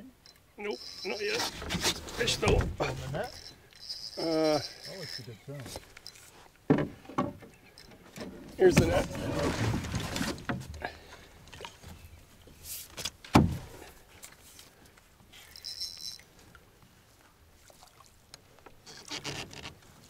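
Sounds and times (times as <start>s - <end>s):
knocks in a canoe: 6.7s - 7.5s, 13.3s - 13.7s
sharp thump on hull: 13.3s - 13.7s.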